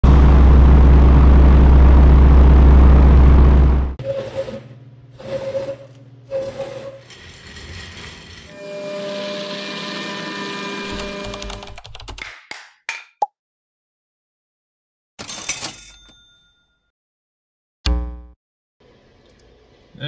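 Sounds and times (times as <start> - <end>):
low engine rumble: 0.0 - 4.0.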